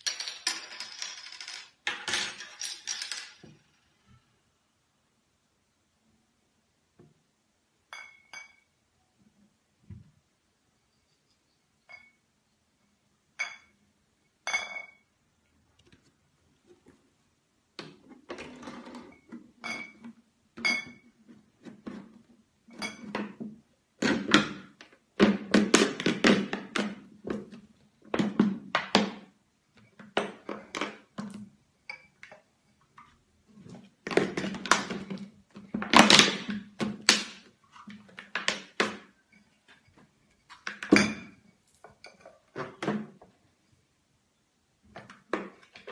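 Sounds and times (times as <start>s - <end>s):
glass bottles clinking: 7.9s - 8.7s, 13.4s - 13.8s, 14.4s - 15.1s, 19.6s - 20.0s, 40.5s - 42.4s.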